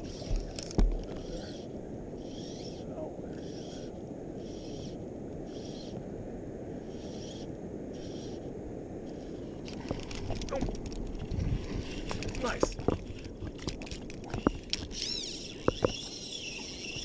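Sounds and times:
wind and water rushing: 0.0s - 17.0s
fly line hissing through guides: 1.1s - 6.0s.

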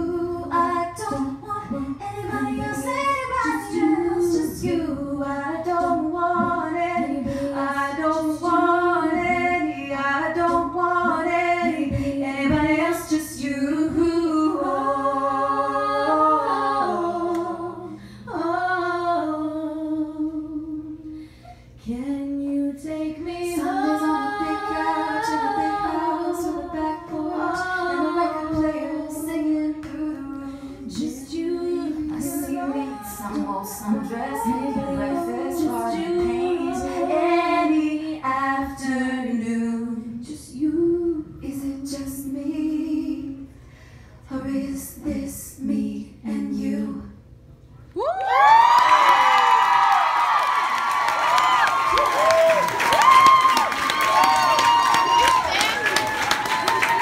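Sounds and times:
woman singing into microphone: 0.0s - 43.5s, 44.3s - 47.2s.

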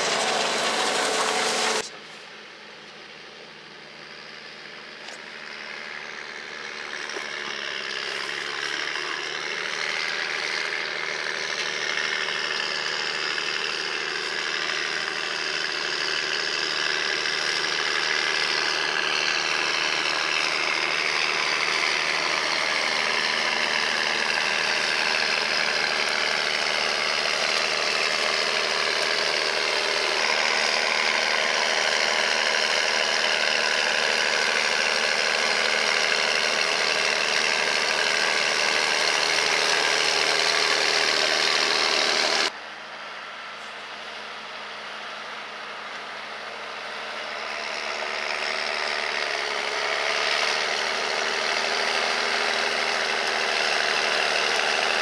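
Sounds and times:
tractor diesel engine droning: 0.0s - 55.0s.

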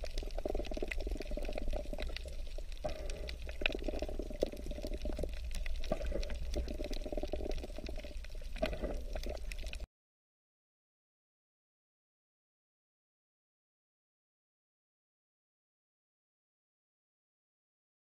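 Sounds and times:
low underwater rumble: 0.0s - 9.9s
sharp underwater clicks and crackles: 0.0s - 9.9s
underwater bubbling water rush: 0.0s - 9.9s.

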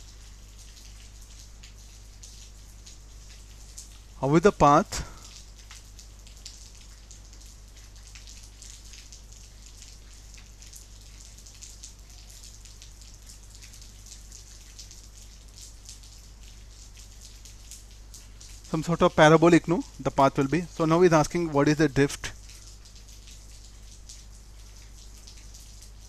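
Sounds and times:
low electrical hum: 0.0s - 26.0s
faint hiss: 4.2s - 5.5s.

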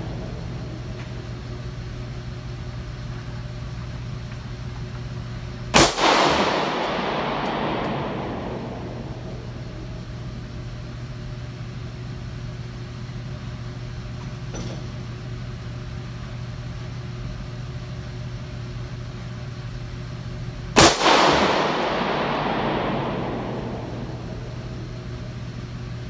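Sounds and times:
pistol shot echoing indoors: 0.0s - 1.9s, 5.7s - 10.8s, 20.7s - 26.0s
steady low hum: 0.0s - 26.0s.

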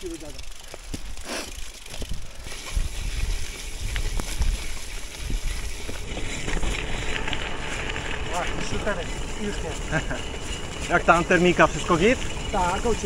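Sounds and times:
light clicks and rattles: 0.0s - 2.8s
bicycle tyres on gravel: 0.0s - 13.0s
wind rumbling on microphone: 1.9s - 13.0s.

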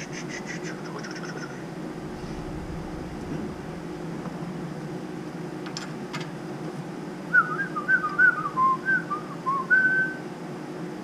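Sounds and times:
low mechanical hum: 0.0s - 11.0s
person whistling a tune: 7.4s - 10.2s.

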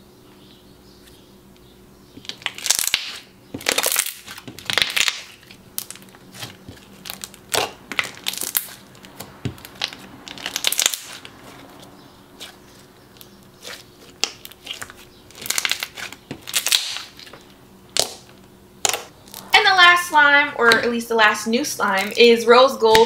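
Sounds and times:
slime clicking and crackling: 2.2s - 19.5s.

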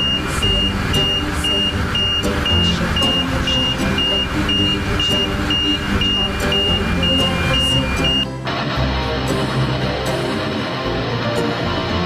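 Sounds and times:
door alarm beeping: 0.0s - 8.3s
low machinery drone: 0.0s - 12.0s.

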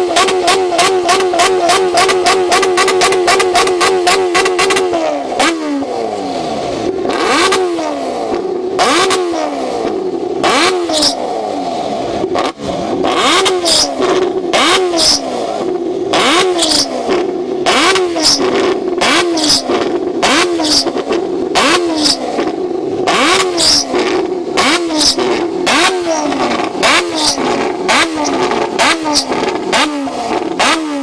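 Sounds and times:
motorcycle engine revving: 0.0s - 31.0s
exhaust crackling pops: 12.9s - 30.8s.

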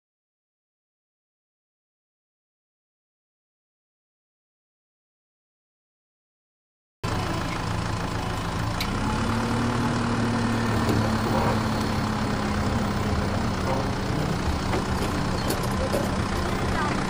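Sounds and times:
low engine-like drone: 7.0s - 17.0s.

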